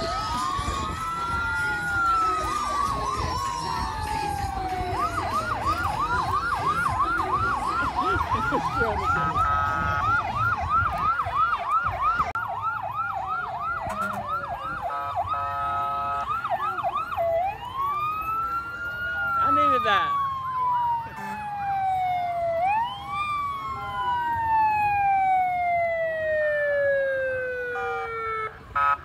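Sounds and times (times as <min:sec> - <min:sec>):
siren wail: 0:00.0 - 0:29.0
siren yelp: 0:00.0 - 0:29.0
fire truck horn blasts: 0:09.3 - 0:10.5, 0:13.8 - 0:16.5, 0:21.2 - 0:21.5, 0:27.7 - 0:29.0.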